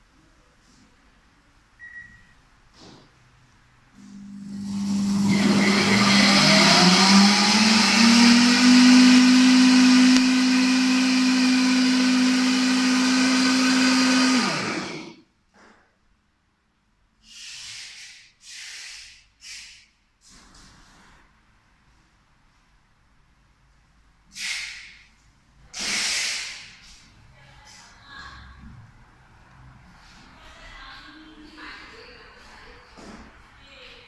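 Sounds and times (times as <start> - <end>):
blender motor whining: 4.0 - 15.2
short puffs of noise: 17.2 - 21.1, 24.3 - 27.2.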